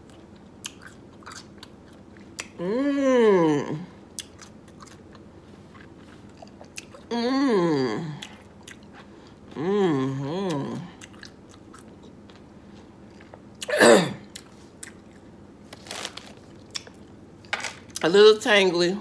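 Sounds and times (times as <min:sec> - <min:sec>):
woman chewing crunchy food: 0:00.0 - 0:02.7, 0:04.1 - 0:07.2, 0:08.0 - 0:09.6, 0:10.4 - 0:17.5
woman humming: 0:02.6 - 0:04.0, 0:07.1 - 0:08.3, 0:09.5 - 0:11.0.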